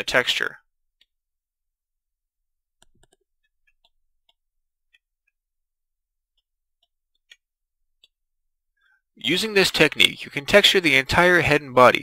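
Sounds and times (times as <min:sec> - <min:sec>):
computer mouse clicks: 0:02.8 - 0:05.0.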